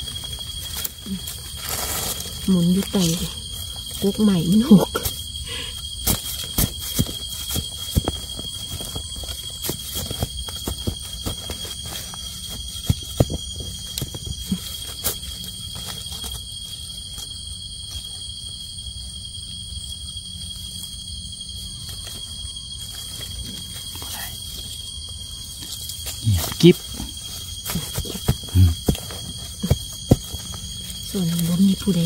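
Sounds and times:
insects droning: 0:00.0 - 0:32.0
footsteps through leaf litter: 0:00.7 - 0:03.1.

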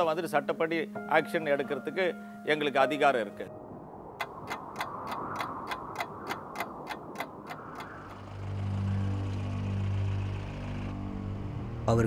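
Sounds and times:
clock ticking: 0:04.2 - 0:08.2
vehicle engine humming: 0:04.2 - 0:12.0.

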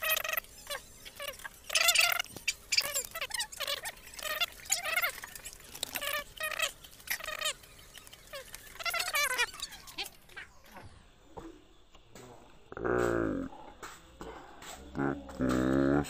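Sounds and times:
animal high-pitched calls: 0:00.0 - 0:10.6.

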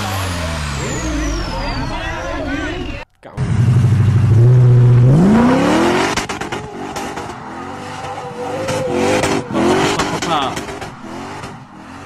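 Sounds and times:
engine revving hard: 0:03.4 - 0:12.0.

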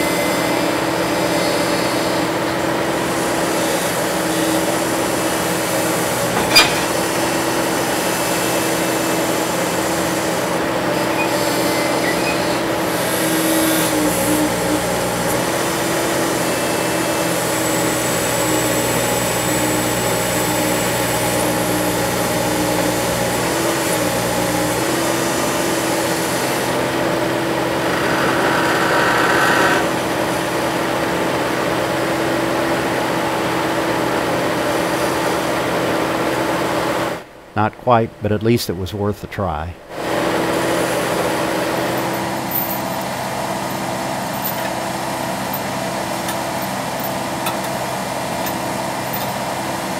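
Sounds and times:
skid steer diesel engine running: 0:00.0 - 0:37.4, 0:39.9 - 0:49.9.

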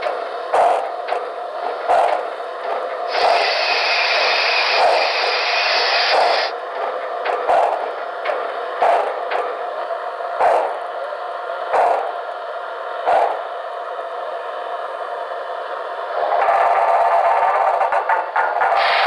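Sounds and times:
steady mechanical sound: 0:00.0 - 0:19.0
loud steam hiss: 0:03.0 - 0:06.5, 0:18.8 - 0:19.0.

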